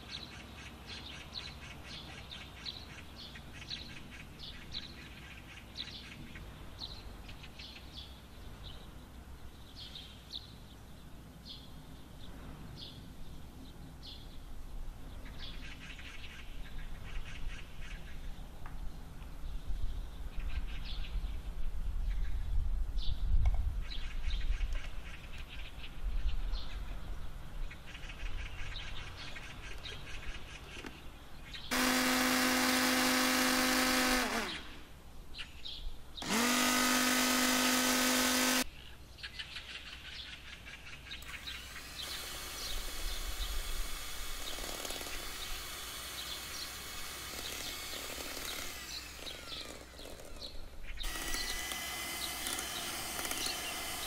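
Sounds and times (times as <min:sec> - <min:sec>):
hand mixer whipping cream: 0:31.7 - 0:34.6, 0:36.2 - 0:38.6, 0:41.5 - 0:50.0, 0:51.0 - 0:54.0
food chopper motor: 0:31.7 - 0:34.7, 0:36.2 - 0:38.7, 0:41.3 - 0:54.0.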